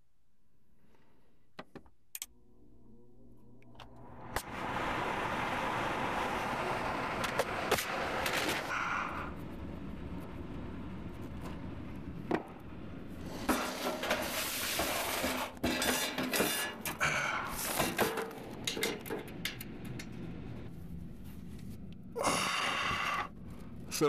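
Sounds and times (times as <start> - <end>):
steady low hum: 0.0 - 14.4, 16.8 - 24.0
clattering and scraping: 13.1 - 17.0, 17.6 - 20.7.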